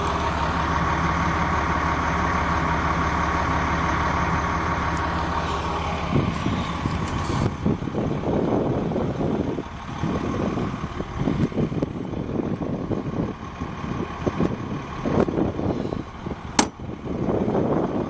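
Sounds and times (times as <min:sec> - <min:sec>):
bus engine idling: 0:00.0 - 0:18.0
sharp click: 0:16.6 - 0:16.8.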